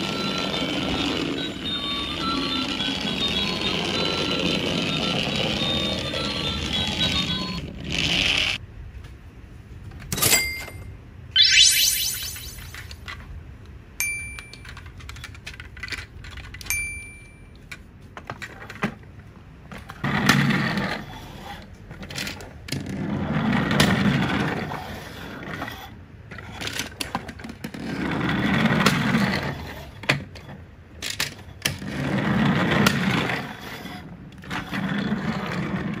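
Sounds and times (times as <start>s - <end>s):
toy train rolling on wooden table: 0.0s - 8.6s, 19.8s - 36.0s
short high beeps: 11.4s - 12.8s
toy handling clicks: 14.2s - 16.8s.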